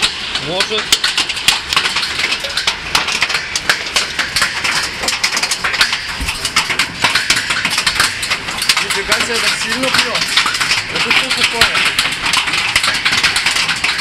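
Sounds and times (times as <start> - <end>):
hail clattering: 0.0 - 14.0.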